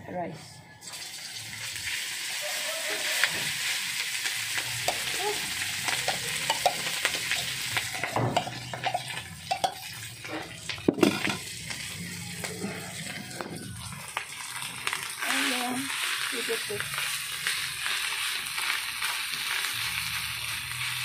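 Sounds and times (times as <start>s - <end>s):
rice sizzling in oil: 0.8s - 21.0s
metal spoon knocking and scraping: 5.8s - 11.4s.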